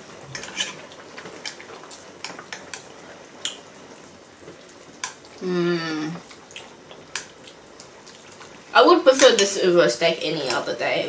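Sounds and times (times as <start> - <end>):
simmering pot hiss: 0.0 - 11.0
chewing: 6.2 - 8.6.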